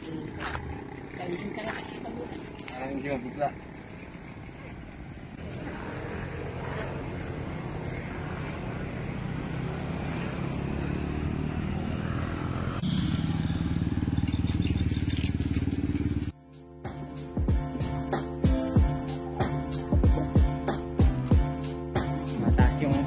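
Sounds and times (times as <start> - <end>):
vehicle engine running: 0.0 - 16.4.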